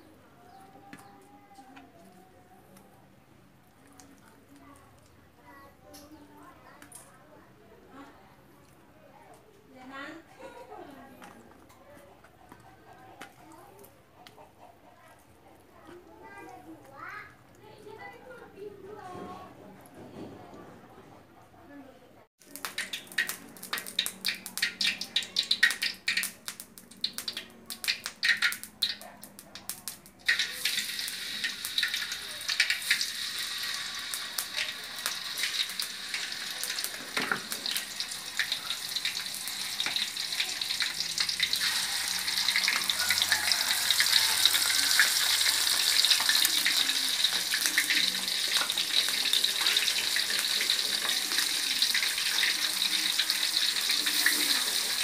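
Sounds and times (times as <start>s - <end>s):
fish sizzling in hot oil: 22.4s - 55.0s.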